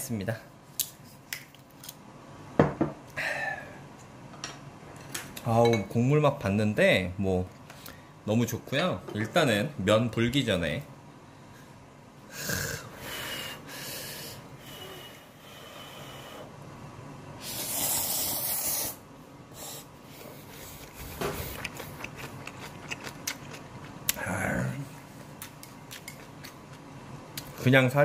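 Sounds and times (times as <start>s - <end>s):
person slurping noodles: 17.4s - 19.0s
chewing: 20.5s - 24.2s, 25.2s - 26.8s.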